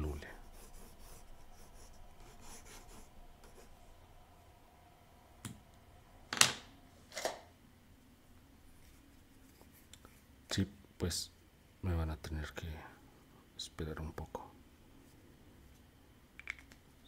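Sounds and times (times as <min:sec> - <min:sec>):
pencil scratching on paper: 0:00.2 - 0:03.8.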